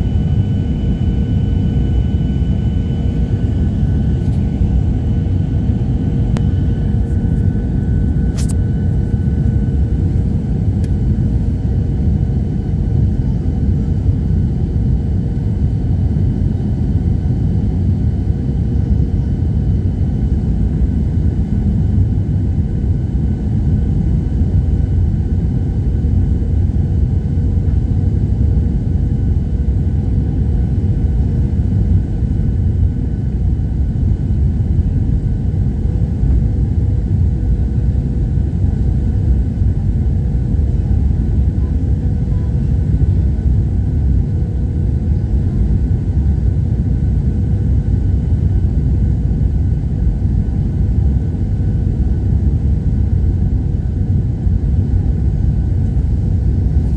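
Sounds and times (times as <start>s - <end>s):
airliner engine rumble: 0.0s - 56.9s
faint steady whine: 0.0s - 56.9s.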